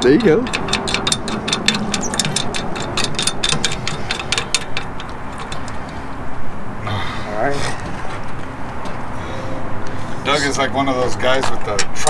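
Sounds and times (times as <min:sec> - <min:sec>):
ratchet wrench clicking: 0:00.0 - 0:06.0.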